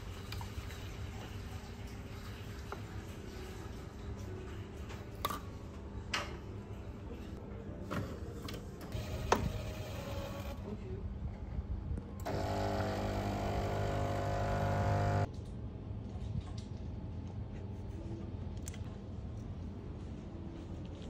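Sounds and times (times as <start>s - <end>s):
coffee machine motor and pump drone: 8.9s - 10.7s, 12.2s - 15.3s.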